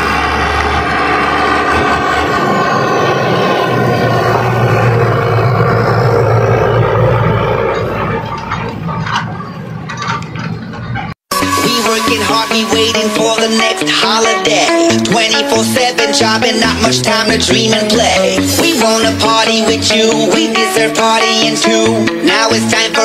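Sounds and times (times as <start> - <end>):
tractor engine passing by: 0.0 - 11.2.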